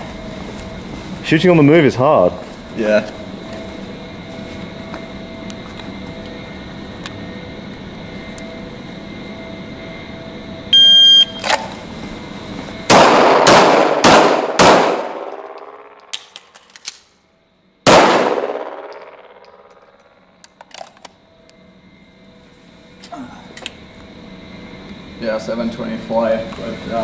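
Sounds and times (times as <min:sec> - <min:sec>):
shot timer beep: 0:10.8 - 0:11.4
pistol shots echoing: 0:12.9 - 0:16.1, 0:17.9 - 0:19.4.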